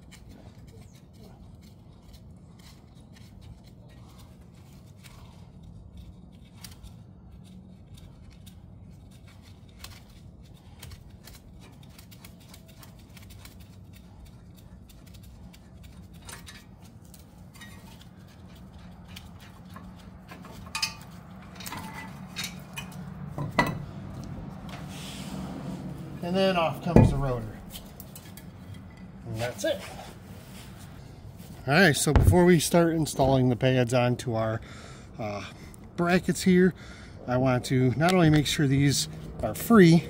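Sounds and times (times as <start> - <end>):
low background hum: 0.0 - 40.0
metallic clinks of brake rotor: 19.6 - 23.9.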